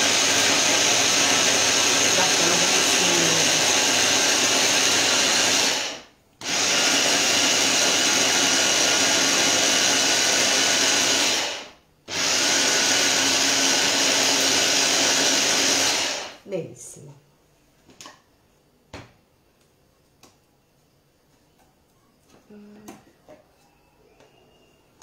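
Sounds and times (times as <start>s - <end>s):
electric blender whining: 0.0s - 16.4s.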